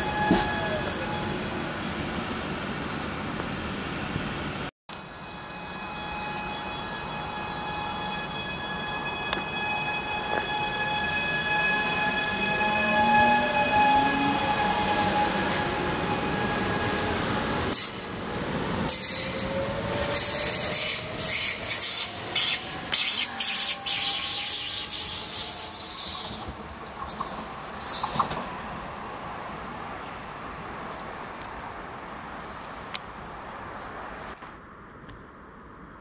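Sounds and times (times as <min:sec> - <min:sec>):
wheels squealing on curved track: 0:08.1 - 0:18.1, 0:18.9 - 0:28.2.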